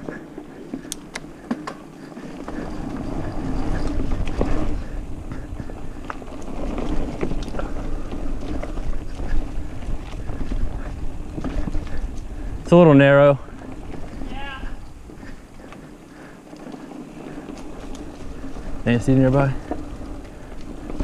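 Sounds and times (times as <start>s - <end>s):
bike clicks and knocks: 0.0s - 12.4s, 16.5s - 21.0s
bike tyres rolling over dirt: 0.0s - 21.0s
wind on microphone: 2.6s - 15.6s.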